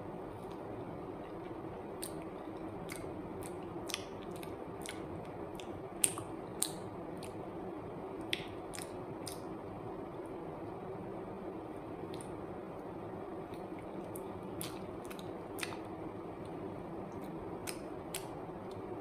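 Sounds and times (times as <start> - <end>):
woman chewing banana: 1.2 - 7.5, 8.2 - 9.5, 13.5 - 18.9
wet lip smacks: 2.0 - 7.4, 8.3 - 9.5, 12.1 - 12.4, 13.5 - 15.8.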